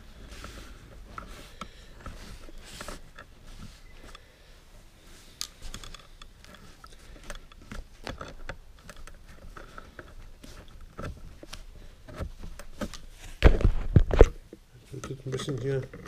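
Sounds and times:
small clicks and taps on metal: 5.4s - 13.0s.

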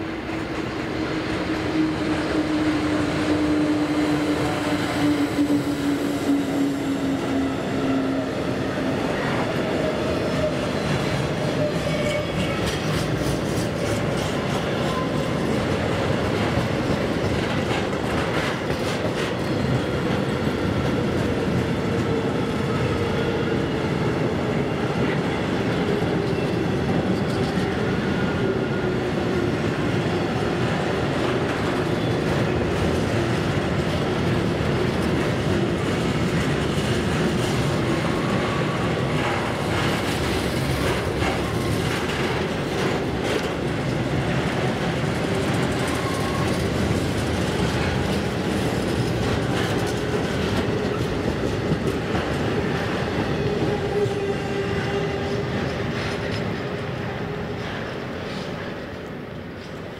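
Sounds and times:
train wagons rumbling past: 0.0s - 59.9s.

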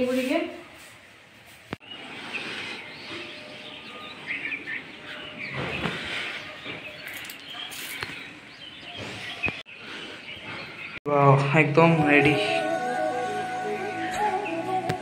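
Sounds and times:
outdoor background noise: 0.0s - 15.0s
small birds chirping: 1.6s - 11.1s.

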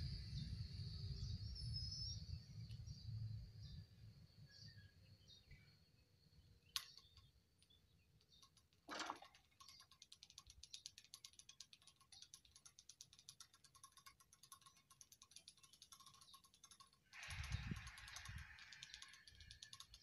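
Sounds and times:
barrier gear clicking and rattling: 9.3s - 20.0s.

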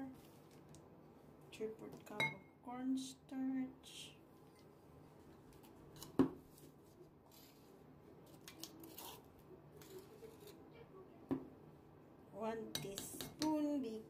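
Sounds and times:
utensil clinking on ceramic bowl: 12.7s - 13.5s.

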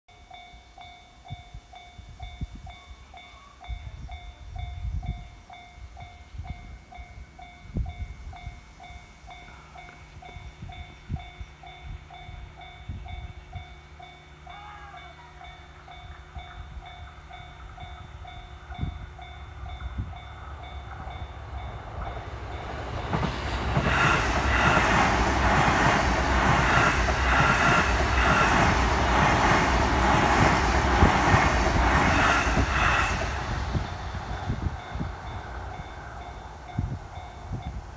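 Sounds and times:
level crossing warning bell: 0.1s - 23.2s, 31.7s - 37.9s
electric train passing: 0.1s - 37.9s.

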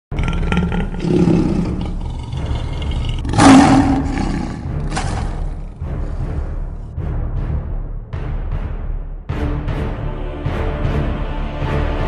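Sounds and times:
lion roar: 0.1s - 6.4s.

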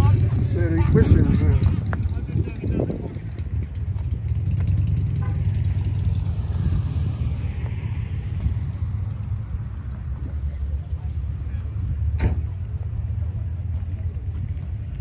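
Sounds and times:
steady low rumble: 0.0s - 15.0s
car driving past: 3.7s - 13.1s.

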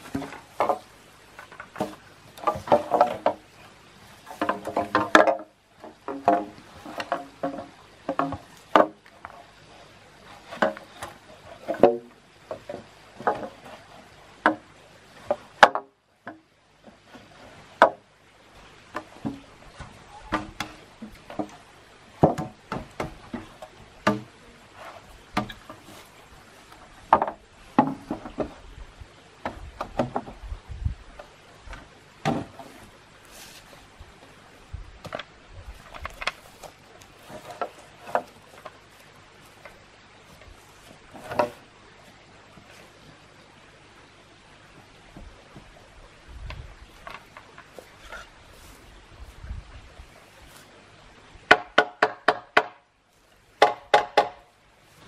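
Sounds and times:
bamboo poles knocking together: 0.0s - 9.5s, 10.2s - 28.6s, 29.4s - 30.4s, 31.1s - 34.3s, 35.0s - 41.7s, 46.4s - 48.8s, 51.5s - 52.9s, 53.6s - 54.5s.

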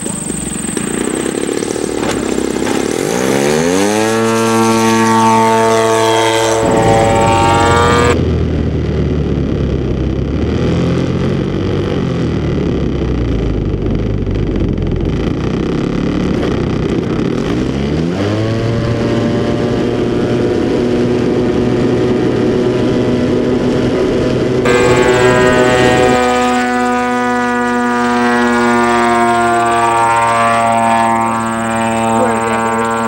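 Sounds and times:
two-stroke engine revving: 0.0s - 8.2s, 15.0s - 33.0s
wind buffeting: 5.9s - 8.5s.

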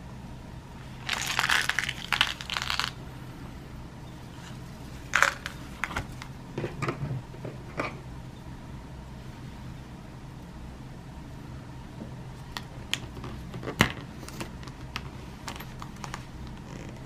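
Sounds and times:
plastic blister pack crinkling: 1.0s - 3.0s, 5.1s - 6.3s.

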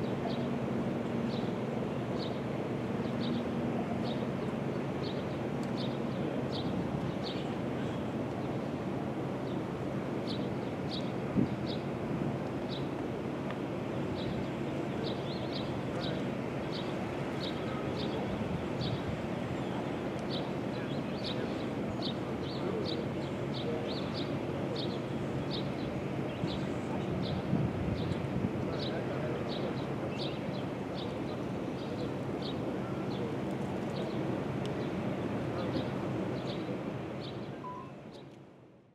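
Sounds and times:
low mechanical hum: 0.0s - 38.9s
wind rumbling on microphone: 6.5s - 7.3s, 11.3s - 12.8s, 17.4s - 20.4s, 25.6s - 30.4s
high bird chirps: 37.6s - 38.0s.

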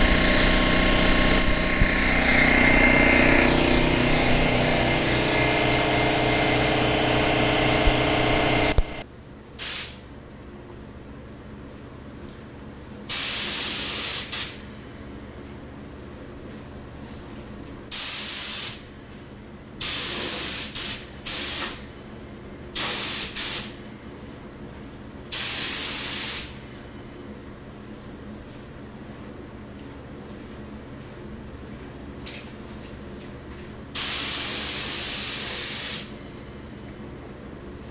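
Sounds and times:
paint spray gun hissing: 9.6s - 10.0s, 17.9s - 18.8s, 19.8s - 21.8s, 22.8s - 23.7s, 25.3s - 26.6s, 34.0s - 36.1s.

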